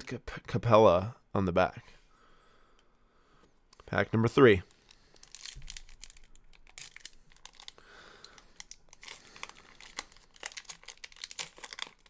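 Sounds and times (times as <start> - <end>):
wrapper tearing and crinkling: 4.9 - 12.0.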